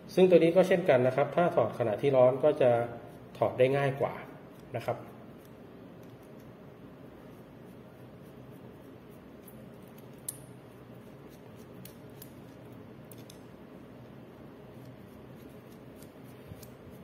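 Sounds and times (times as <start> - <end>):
steady low hum: 0.0 - 17.0
screwdriver metallic clicks: 11.7 - 13.5.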